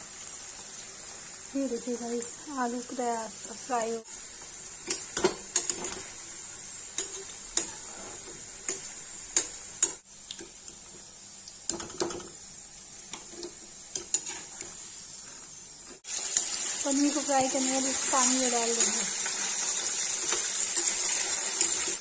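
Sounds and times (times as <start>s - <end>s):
potatoes sizzling in hot oil: 0.0s - 22.0s
metal spoon scraping a pan: 7.0s - 10.0s, 13.2s - 15.4s, 17.9s - 22.0s.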